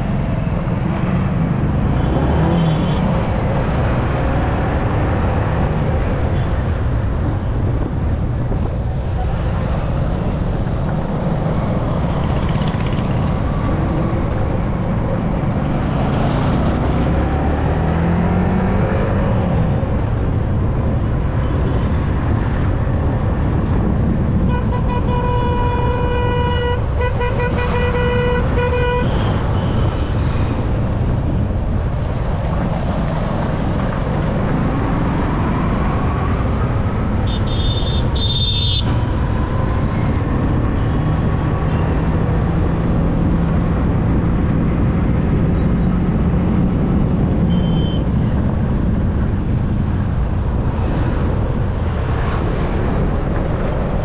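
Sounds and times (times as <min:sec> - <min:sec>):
motorcycle engine and wind rumble: 0:00.0 - 0:54.0
vehicle horn honking: 0:24.5 - 0:29.8, 0:37.3 - 0:38.9, 0:47.5 - 0:48.0.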